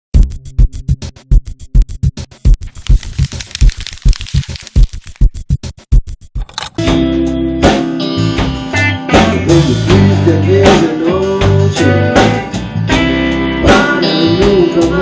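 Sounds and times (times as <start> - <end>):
drums steady beat: 0.2 - 2.8, 5.1 - 6.9
electric guitar: 6.8 - 15.0.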